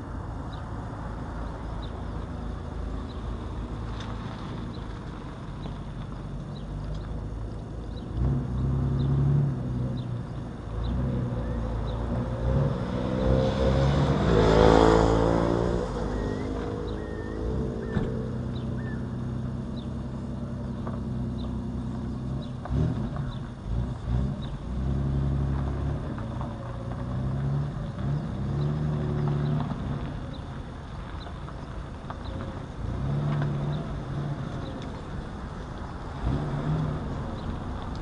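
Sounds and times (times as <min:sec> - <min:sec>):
vehicle engine passing by: 0:07.8 - 0:38.0
faint bird chirps: 0:16.1 - 0:20.0.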